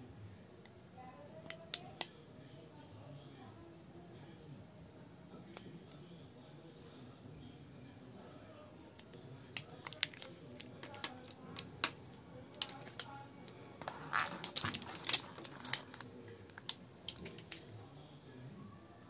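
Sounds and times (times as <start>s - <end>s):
hands handling cable and box: 9.0s - 13.2s, 13.8s - 17.7s.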